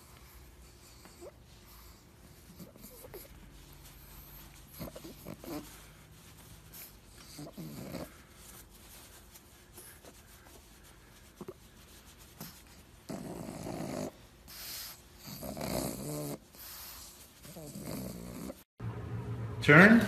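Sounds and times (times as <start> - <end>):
dog snoring: 4.7 - 5.7, 7.2 - 8.2, 13.1 - 16.8, 17.4 - 18.6.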